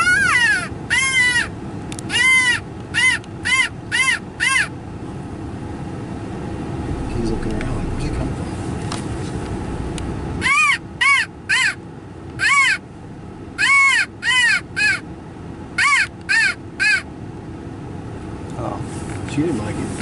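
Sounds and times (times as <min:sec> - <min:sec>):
low wind-like rumble: 0:01.5 - 0:15.8.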